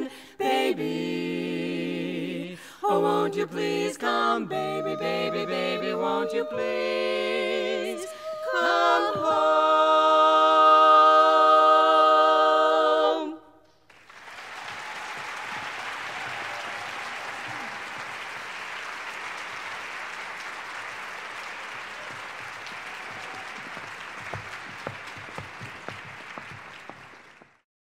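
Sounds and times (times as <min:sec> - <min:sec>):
women singing a cappella chord: 0:00.0 - 0:13.6
audience applauding: 0:13.9 - 0:27.6.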